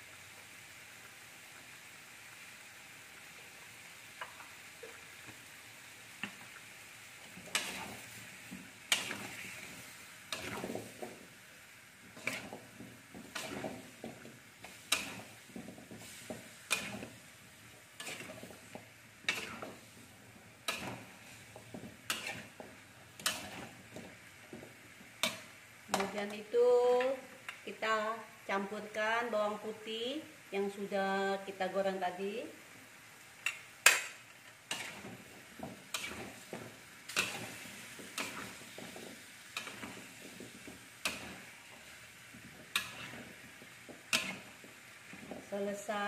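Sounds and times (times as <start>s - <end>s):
faint sizzle: 0.0s - 46.0s
metal spatula scraping a wok: 7.4s - 8.2s, 8.9s - 11.1s, 12.1s - 17.2s, 18.0s - 20.0s, 20.7s - 24.0s, 34.7s - 45.4s.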